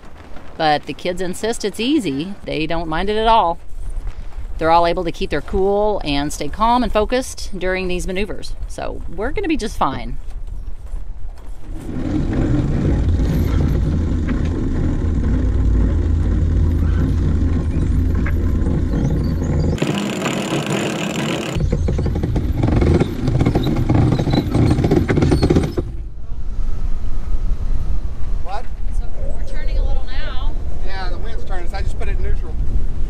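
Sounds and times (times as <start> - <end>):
wind buffeting microphone: 0.0 - 19.8, 26.1 - 33.0
boat engine: 11.6 - 26.5.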